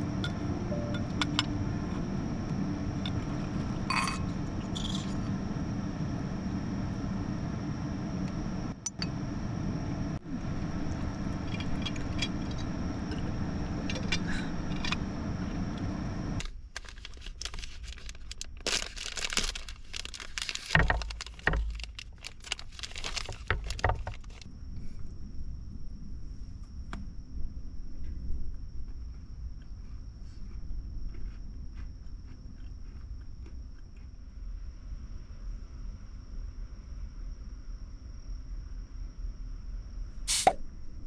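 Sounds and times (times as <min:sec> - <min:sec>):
steady low hum: 0:00.0 - 0:41.0
paper wrapper crinkling: 0:16.4 - 0:24.5.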